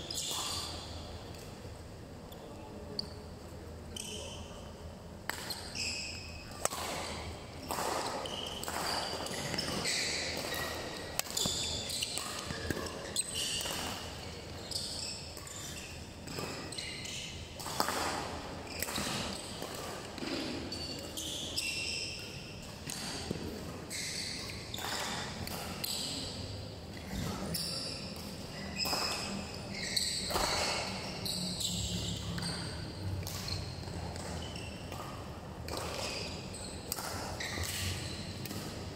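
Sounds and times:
sneakers squeaking on court floor: 0.0 - 1.8, 2.4 - 38.9
racket striking shuttlecock: 6.5 - 14.2, 17.6 - 21.2, 24.4 - 26.4, 30.0 - 31.1, 32.4 - 38.8.

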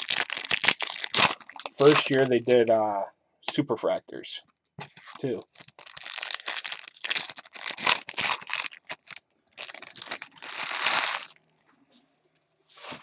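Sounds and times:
foil wrapper tearing and crinkling: 0.0 - 2.7, 5.1 - 11.4.

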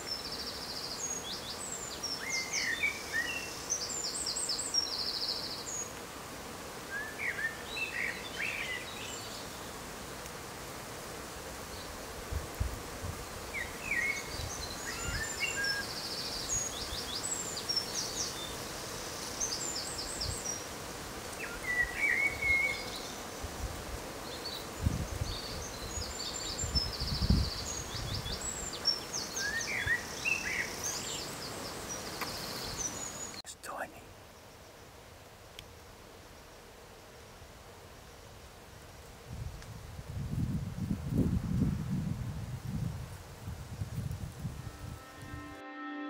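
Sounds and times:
songbirds trilling and chirping: 0.0 - 6.0, 6.8 - 10.0, 13.4 - 38.5
outdoor background hiss: 0.0 - 46.0.

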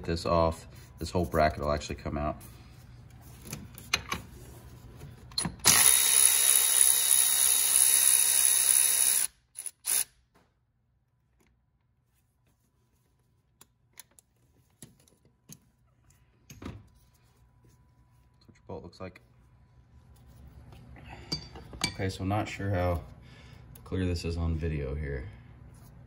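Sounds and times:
electric ratchet whirring: 5.6 - 10.2.

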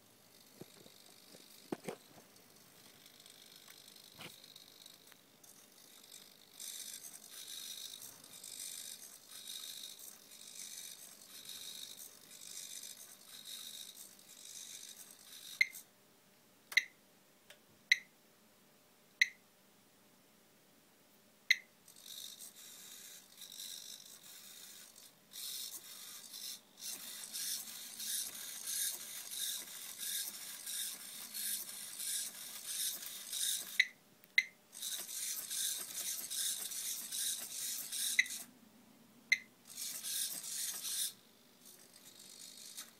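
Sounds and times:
robot motors whirring: 0.3 - 15.8, 21.9 - 33.8, 34.8 - 38.5, 39.7 - 42.9.

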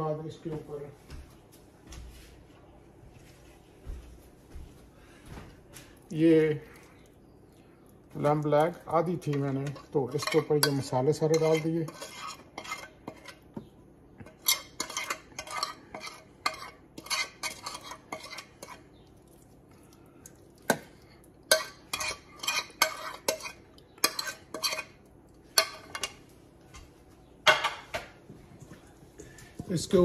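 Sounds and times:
spices scraped off a plate: 9.6 - 13.4, 14.3 - 18.9.

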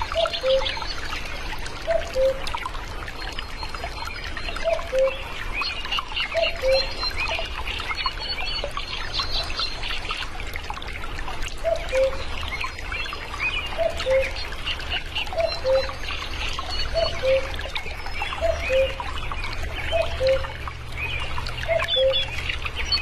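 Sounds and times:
cuckoo calling: 0.0 - 1.0, 1.8 - 2.7, 4.4 - 7.5, 11.6 - 12.8, 13.7 - 19.2, 19.8 - 20.6, 21.6 - 23.0
small birds chirping: 0.0 - 10.4, 11.0 - 23.0
water trickling: 0.0 - 23.0.

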